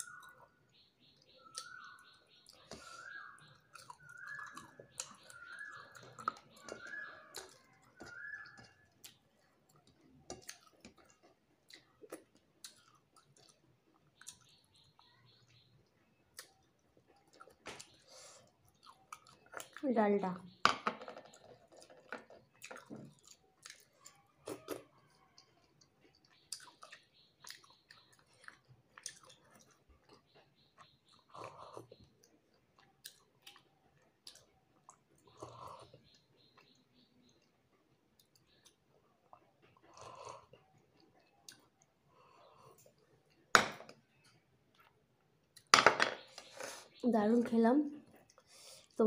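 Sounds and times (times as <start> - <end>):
person chewing: 2.4 - 14.5, 16.2 - 19.8, 21.8 - 43.5.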